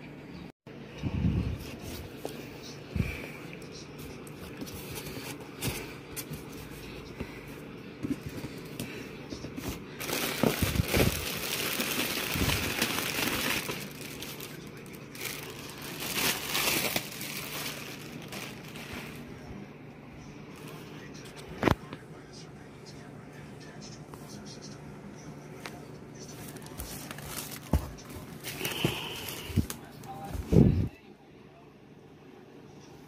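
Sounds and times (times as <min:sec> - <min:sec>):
plastic packaging crinkling: 0:09.6 - 0:19.3, 0:26.4 - 0:30.1.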